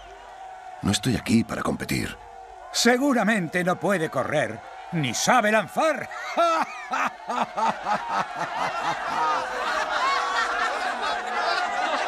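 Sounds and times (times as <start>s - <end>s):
many voices laughing and chattering: 3.6s - 12.0s
person laughing: 6.2s - 8.2s.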